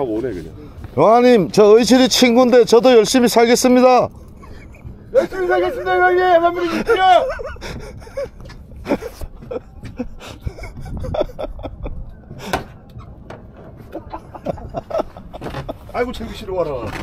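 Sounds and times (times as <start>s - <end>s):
low boat rumble: 0.0s - 17.0s
faint distant voices: 12.1s - 17.0s.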